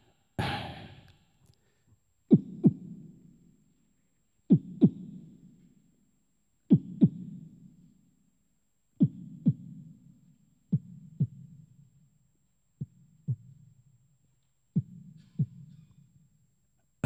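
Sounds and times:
vocal percussion heartbeat thumps: 0.0 - 1.2, 2.3 - 3.0, 4.5 - 5.3, 6.7 - 7.4, 9.0 - 10.0, 10.7 - 11.6, 12.8 - 13.6, 14.7 - 15.9.

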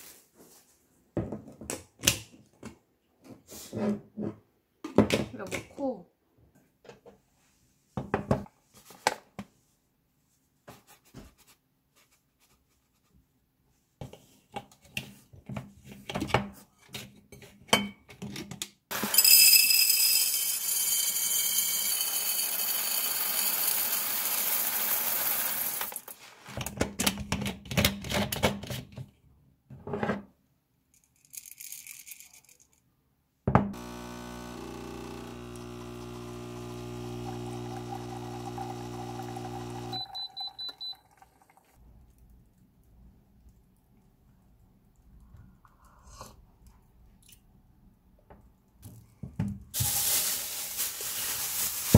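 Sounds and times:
coffee beans rattling on glass: 18.9 - 26.1
espresso machine humming: 19.8 - 25.9, 33.8 - 40.8
paper bag crinkling: 49.8 - 51.9.

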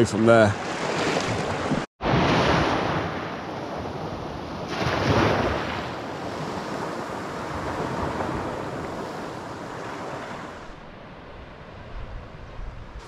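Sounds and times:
wind buffeting microphone: 3.6 - 13.0.

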